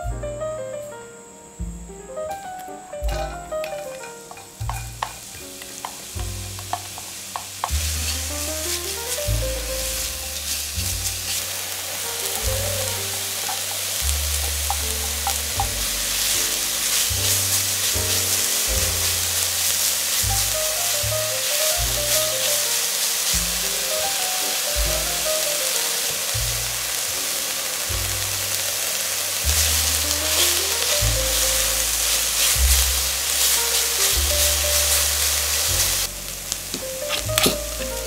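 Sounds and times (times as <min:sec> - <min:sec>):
piano music: 0:00.0 - 0:38.0
vegetables sizzling in oil: 0:02.3 - 0:38.0.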